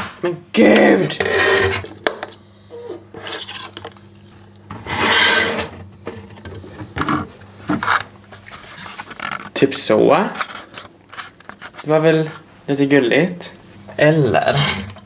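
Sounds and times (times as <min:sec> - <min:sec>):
metal letters scraping on countertop: 0:01.2 - 0:01.9, 0:03.1 - 0:04.0, 0:04.7 - 0:05.8, 0:14.4 - 0:15.0.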